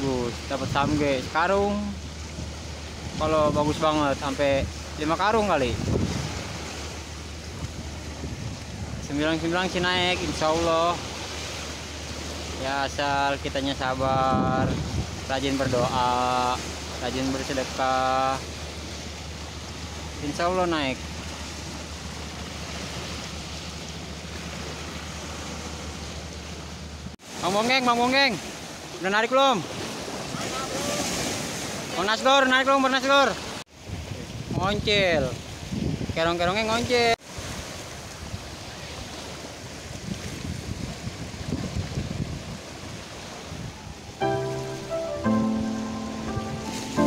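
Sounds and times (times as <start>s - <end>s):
wind gusting on microphone: 0.0s - 16.9s, 33.8s - 36.2s, 39.3s - 44.2s
waves breaking on shore: 0.0s - 47.0s.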